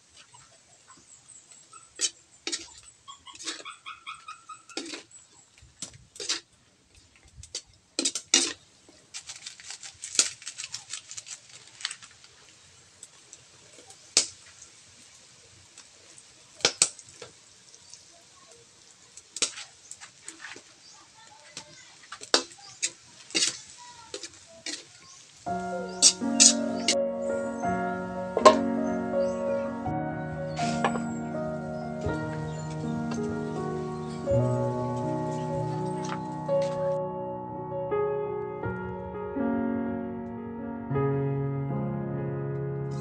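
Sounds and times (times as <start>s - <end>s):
spatula scraping a metal wok: 2.0s - 3.7s, 4.7s - 5.1s, 6.2s - 6.5s, 22.3s - 24.9s.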